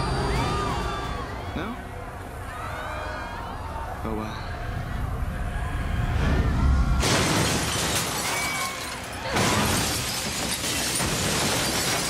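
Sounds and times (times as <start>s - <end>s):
glass shattering: 7.0s - 12.0s.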